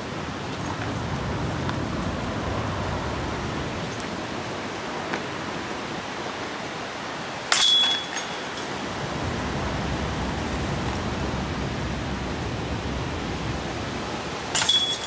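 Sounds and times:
steady background hiss: 0.0 - 15.0
disc hitting metal chains: 7.5 - 9.4, 14.5 - 15.0.

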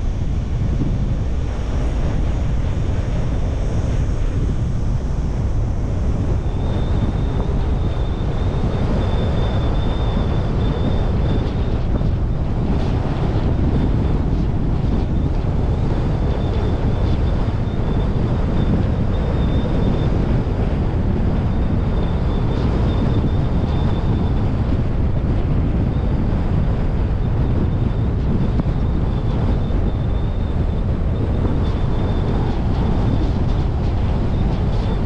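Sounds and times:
wind on microphone: 0.0 - 35.0.

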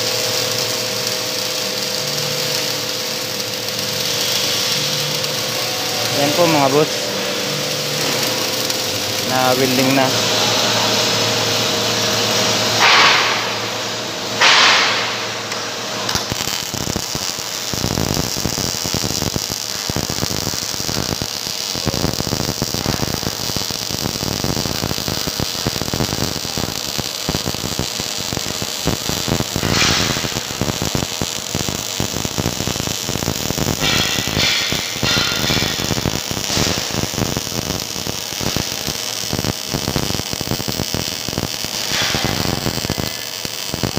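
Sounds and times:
loud bursts of noise: 0.0 - 43.9
welding arc crackling: 0.0 - 43.9.

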